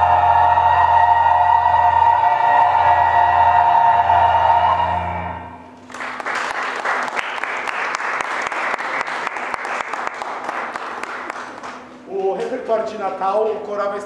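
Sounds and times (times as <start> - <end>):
audience applauding: 5.8 - 12.5.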